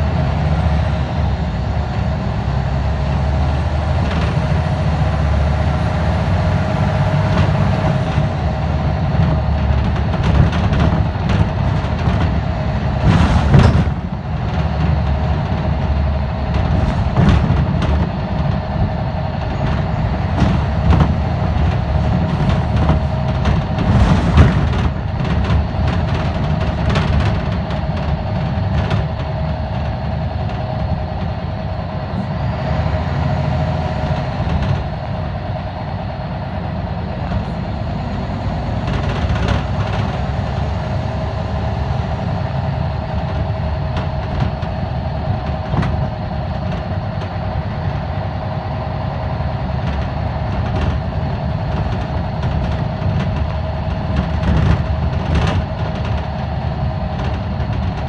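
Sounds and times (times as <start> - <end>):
bus body rattles and knocks: 0.0 - 58.0
bus diesel engine drone: 0.0 - 58.0
whining tone: 12.5 - 58.0.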